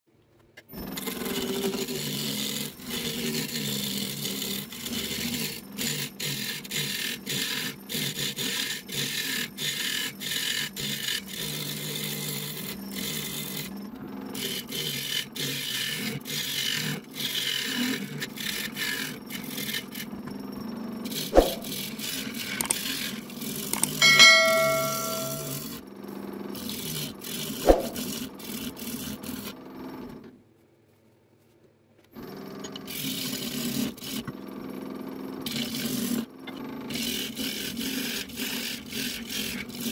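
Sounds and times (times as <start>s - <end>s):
wood lathe running: 1.0s - 13.7s, 19.6s - 20.0s
tool cutting into wood: 21.4s - 22.8s
brief ringing tone: 24.0s - 25.6s
sharp knocks: 24.0s - 25.6s.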